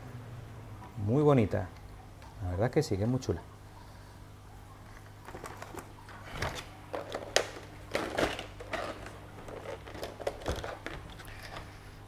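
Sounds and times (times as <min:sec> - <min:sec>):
plastic trays clicking and crinkling: 0:04.9 - 0:11.7.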